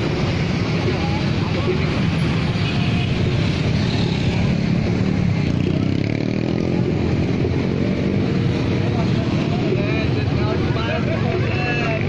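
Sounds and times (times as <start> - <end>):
crowd chatter: 0.0 - 12.0
motorcycle engines passing: 0.0 - 12.0.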